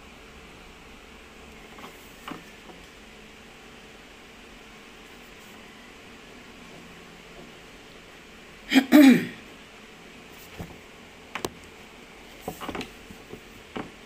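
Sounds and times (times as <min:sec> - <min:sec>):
woman clearing her throat: 0:08.7 - 0:09.4
faint clicks and taps: 0:10.5 - 0:11.8, 0:12.4 - 0:14.0.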